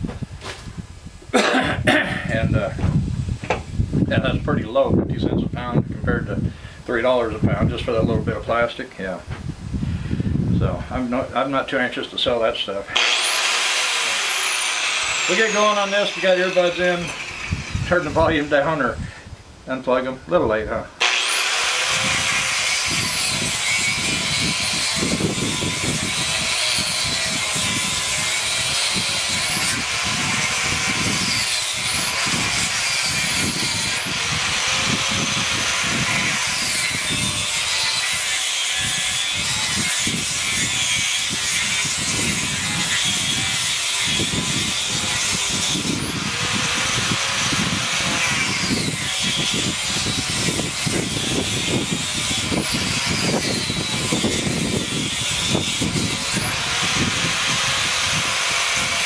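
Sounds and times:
angle grinder cutting metal: 12.9 - 19.0, 21.0 - 59.0.

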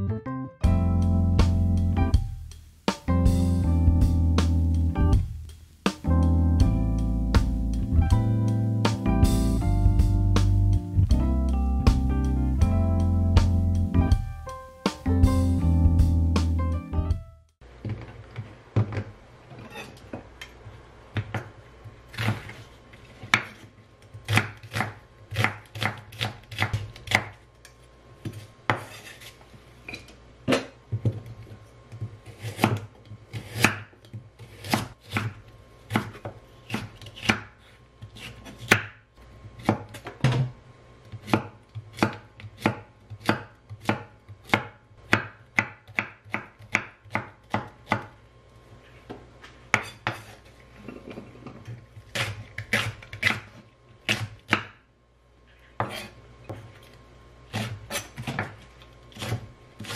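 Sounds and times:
knife chopping on wooden board: 24.2 - 27.4, 28.2 - 29.3, 32.0 - 37.6, 38.2 - 38.9, 39.6 - 40.5, 41.1 - 48.1, 49.7 - 50.4, 52.1 - 54.8, 55.8 - 56.7, 57.5 - 59.9.

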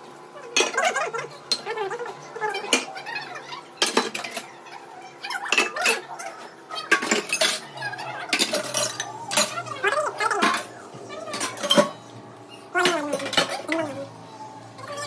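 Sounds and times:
metal dishes clinking in sink: 3.8 - 4.5, 6.8 - 7.7, 8.3 - 9.6, 11.3 - 12.0, 12.8 - 13.9.

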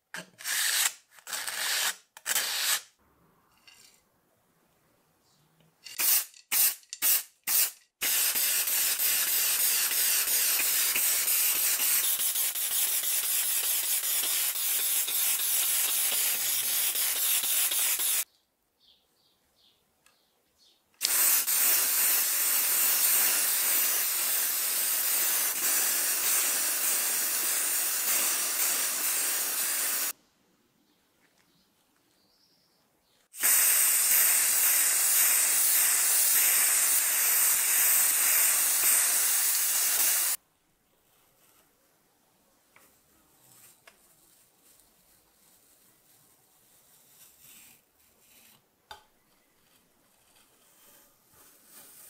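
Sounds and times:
spray paint can hissing: 5.8 - 18.3, 21.0 - 30.2, 33.4 - 40.4.

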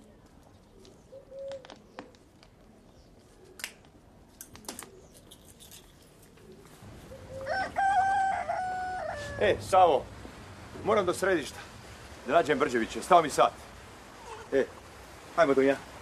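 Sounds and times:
rooster crowing: 7.1 - 9.7.

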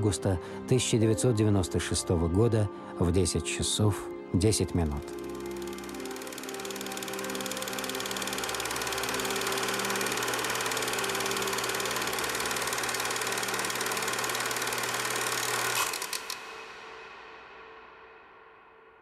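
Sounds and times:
film projector clattering: 5.0 - 16.6.

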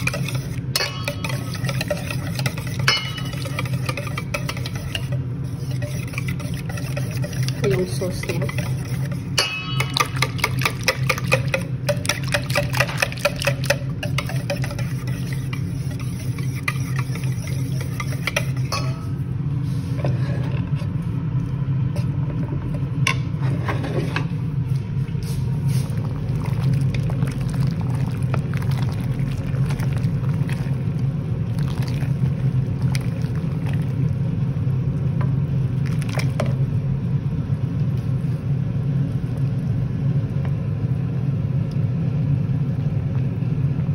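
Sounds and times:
whisk clicking against metal bowl: 0.0 - 19.0
steady low hum: 0.0 - 43.9
utensil knocking on pan: 9.3 - 14.9.

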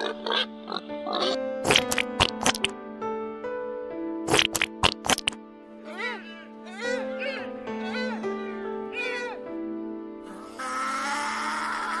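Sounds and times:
background music with held notes: 0.0 - 12.0.

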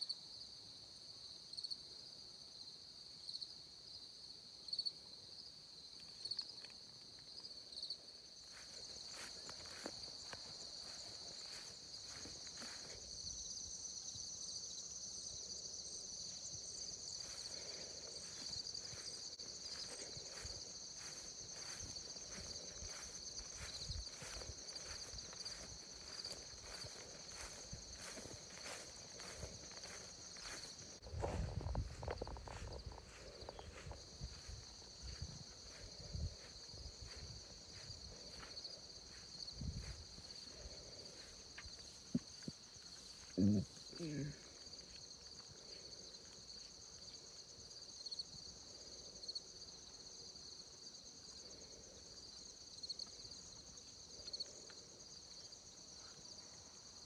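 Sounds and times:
insects trilling: 4.6 - 57.0
soft footsteps in grass: 6.0 - 48.9.

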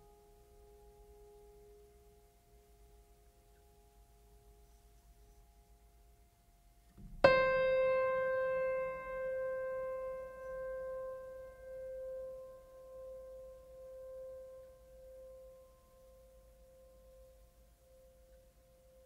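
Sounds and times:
piano note ringing: 7.0 - 17.3.

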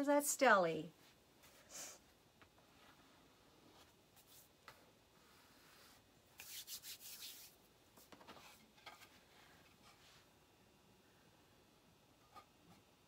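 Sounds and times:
hands brushed together: 5.6 - 8.1.

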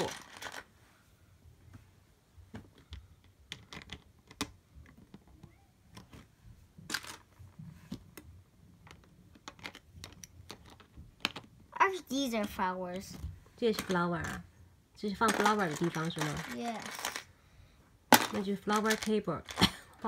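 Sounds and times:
plastic bricks clicking: 2.8 - 6.2, 8.8 - 11.6, 15.2 - 17.3, 18.1 - 19.7.

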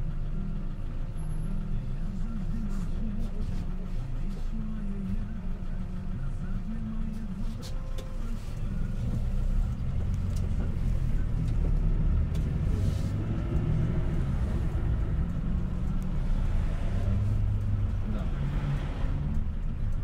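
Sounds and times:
car engine and tyre rumble: 0.0 - 20.0.

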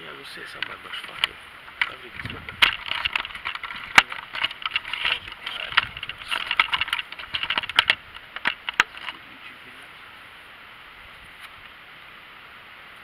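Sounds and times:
rustling and scraping: 0.0 - 10.4
sharp clicks and knocks: 0.5 - 9.3.

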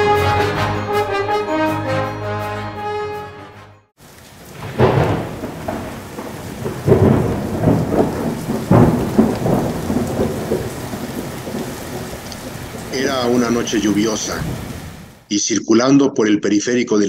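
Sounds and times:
steady rain: 4.0 - 15.3
thunder claps: 4.0 - 15.3.

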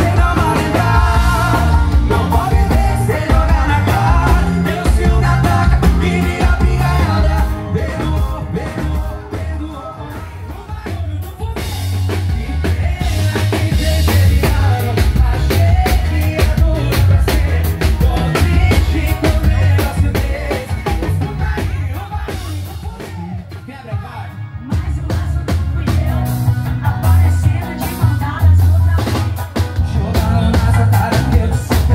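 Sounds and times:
drum kit beat: 0.0 - 31.9
live band music: 0.0 - 31.9
man singing: 0.0 - 31.9.

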